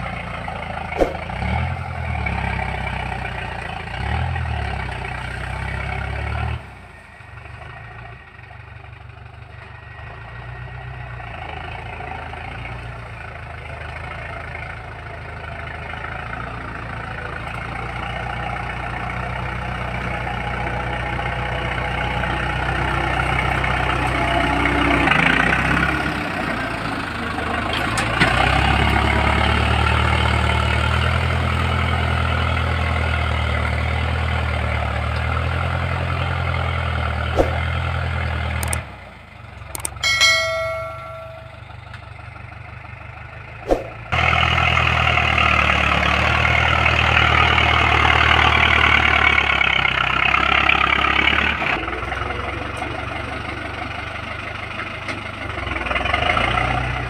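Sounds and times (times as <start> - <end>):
tractor engine under load: 0.0 - 57.0
click: 38.6 - 38.8, 39.7 - 40.0
short bell-like chime: 40.0 - 41.8.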